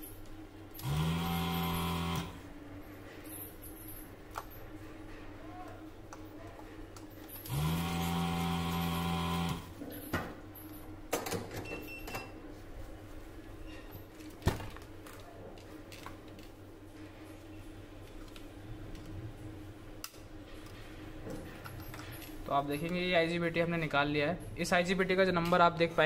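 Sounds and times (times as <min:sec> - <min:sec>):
desoldering vacuum pump running: 0:00.8 - 0:02.5, 0:07.4 - 0:09.8.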